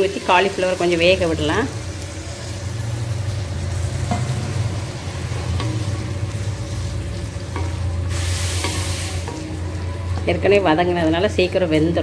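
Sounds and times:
frying sizzle: 0.0 - 12.0
spatula stirring in metal pan: 3.3 - 11.6.

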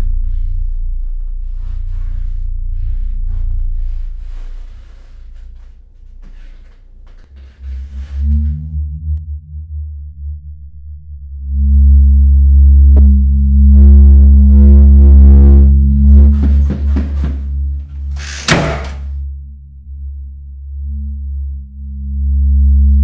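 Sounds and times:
deep droning rumble: 0.0 - 23.0
humming tone: 7.1 - 23.0
door slamming: 16.0 - 19.2.

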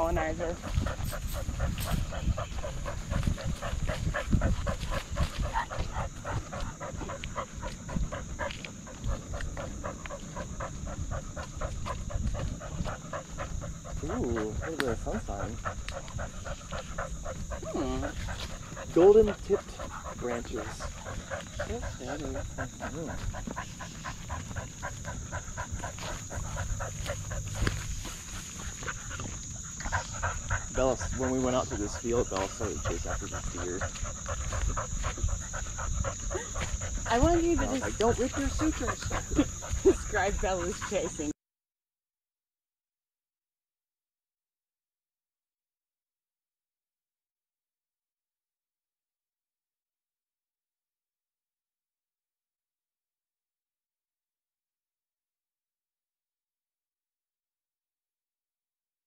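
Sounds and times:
dog panting rapidly: 0.1 - 41.4.

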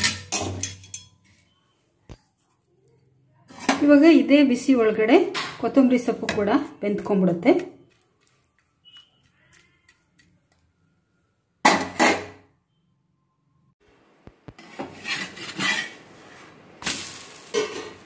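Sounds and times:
utensils clattering on metal pan: 0.0 - 1.3, 17.4 - 18.0.

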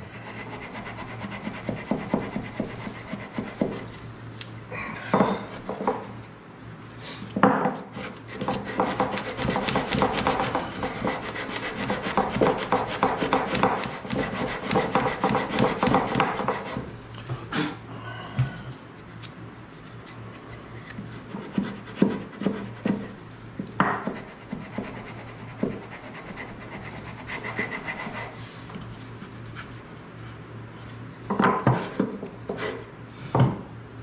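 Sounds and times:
hand sanding on plywood: 0.1 - 4.0, 7.9 - 16.9, 24.0 - 28.4.

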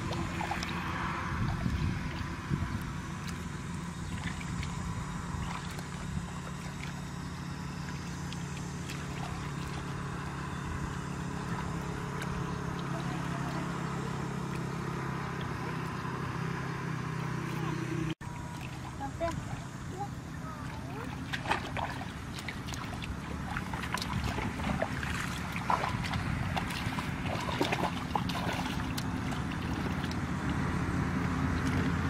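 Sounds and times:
low engine drone: 0.0 - 32.0
hands splashing in muddy water: 20.7 - 32.0.

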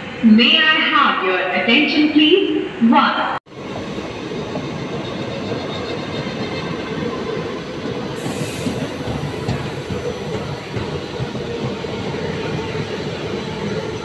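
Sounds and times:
train wheels rumbling on rail: 3.5 - 14.0
brief hiss: 8.2 - 9.1.

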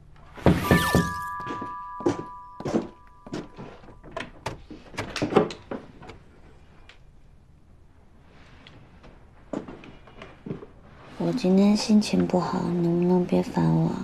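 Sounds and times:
doorbell chime: 0.6 - 4.1.

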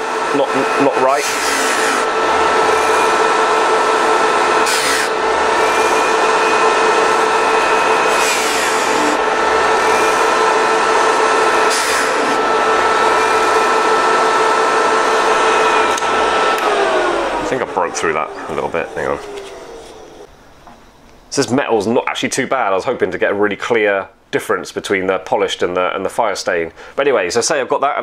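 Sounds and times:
buffing motor whine: 0.0 - 20.8.

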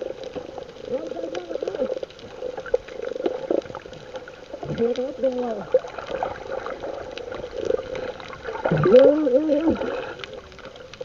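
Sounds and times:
water splashing and sloshing: 0.0 - 11.0
person calling out: 0.9 - 2.0, 8.7 - 9.9.

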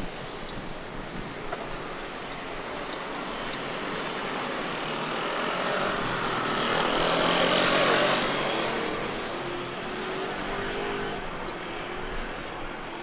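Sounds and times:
vehicle passing by: 4.6 - 11.3.

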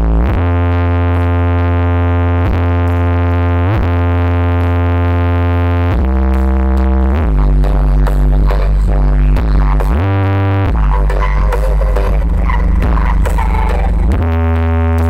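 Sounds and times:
electronic synth music: 0.0 - 15.0.

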